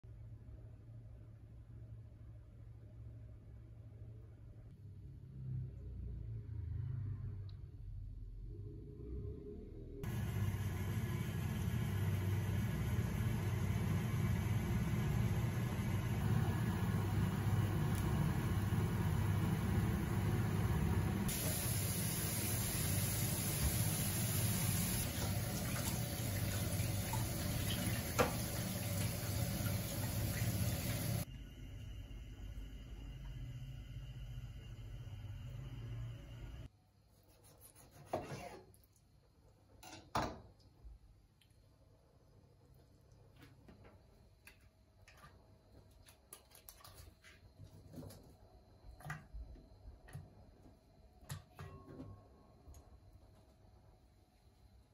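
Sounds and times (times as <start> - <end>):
faucet running into a steel pot: 21.3 - 31.3.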